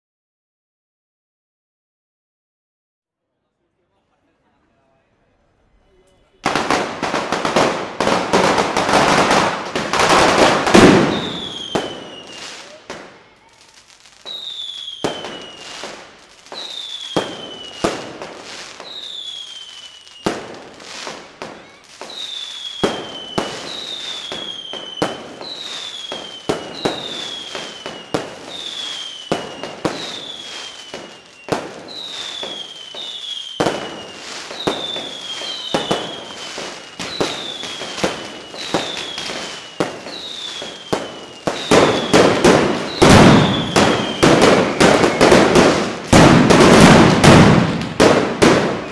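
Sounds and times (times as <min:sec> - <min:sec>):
firecracker bangs: 0:06.4 - 0:13.2, 0:20.2 - 0:48.9
falling whistle: 0:11.1 - 0:12.6, 0:14.2 - 0:15.9, 0:16.5 - 0:18.0, 0:18.8 - 0:20.4, 0:22.1 - 0:45.6.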